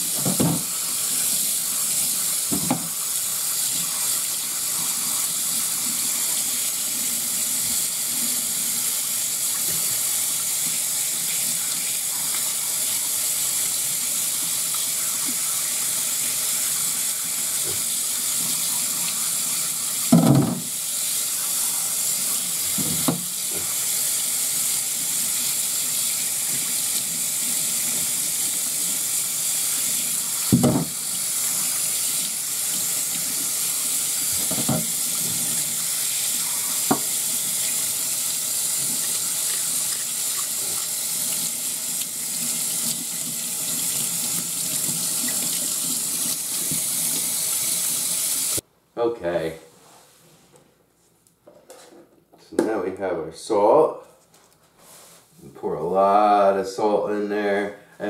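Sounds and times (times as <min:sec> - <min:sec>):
tap running into sink: 0:00.1 - 0:00.7, 0:02.5 - 0:03.0, 0:20.1 - 0:20.7, 0:30.5 - 0:31.0, 0:34.3 - 0:35.6, 0:36.8 - 0:37.8.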